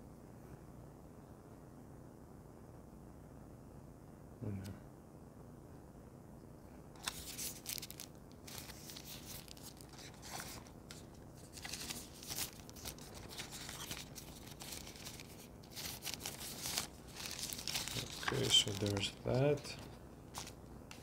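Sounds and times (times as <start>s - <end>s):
plastic packaging crinkling: 7.0s - 21.0s
small tearing noises: 7.0s - 21.0s.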